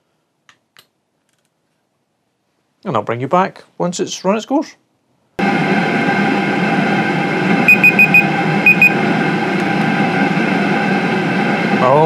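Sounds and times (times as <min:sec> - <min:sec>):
diesel air heater humming: 0:05.4 - 0:12.0
phone timer beeps: 0:07.7 - 0:09.0.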